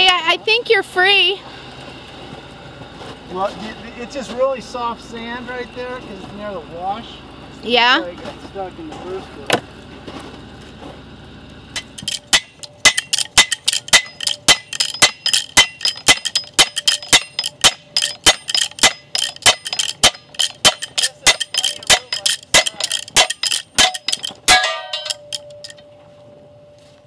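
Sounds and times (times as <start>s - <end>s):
slide hammer clanking on metal: 11.8s - 25.8s.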